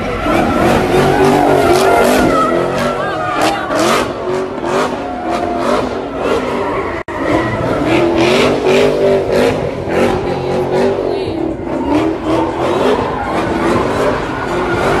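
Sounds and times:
car engine revving hard: 0.0 - 15.0
tires squealing: 0.0 - 15.0.

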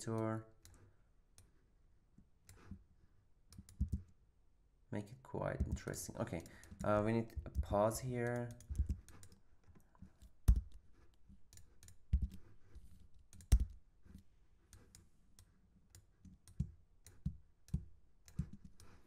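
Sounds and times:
mouse and keyboard clicks: 3.5 - 4.2, 5.6 - 19.0.

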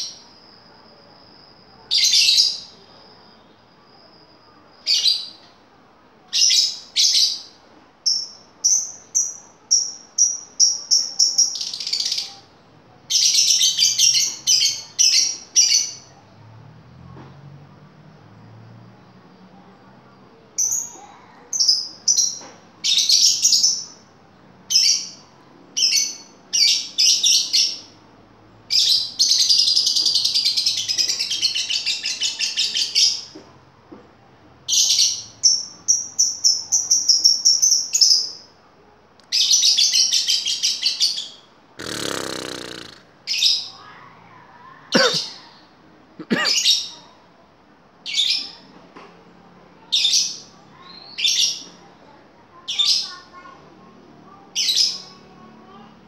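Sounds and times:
lovebird chirps and trills: 6.3 - 12.5, 34.7 - 38.5.

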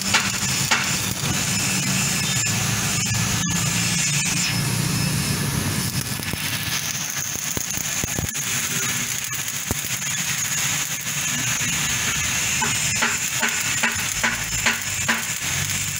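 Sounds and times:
spatter pops: 0.0 - 2.6, 5.8 - 15.9
welding arc crackling: 0.0 - 15.9.

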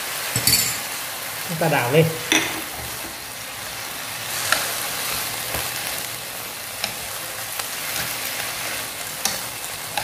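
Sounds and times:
leaves sizzling in hot oil: 0.0 - 10.0
chopsticks clicking against pan: 6.8 - 7.1, 9.2 - 10.0.

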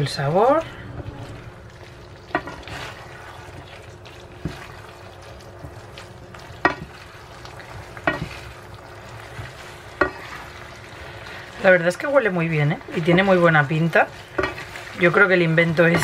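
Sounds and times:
sauce sizzling in a pan: 1.4 - 16.0
wooden utensils knocking on pan: 6.6 - 7.0, 8.0 - 8.4, 10.0 - 10.3, 14.4 - 14.6.

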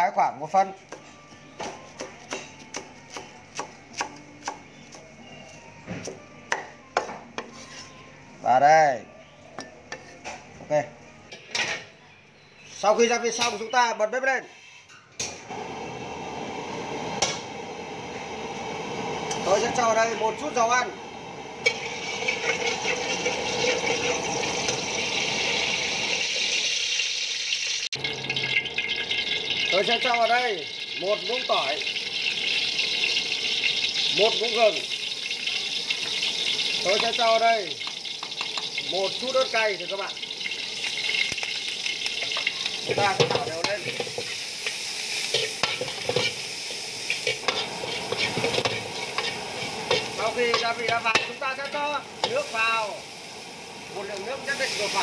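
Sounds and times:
oil sizzling in a wok: 15.4 - 55.0.

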